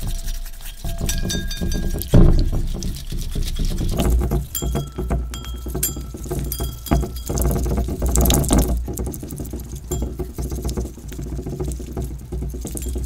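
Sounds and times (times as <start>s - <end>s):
slime squelching in a glass bowl: 0.0s - 13.0s.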